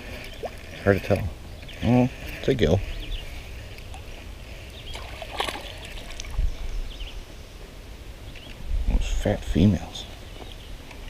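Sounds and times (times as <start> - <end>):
fish splashing: 4.8 - 6.4.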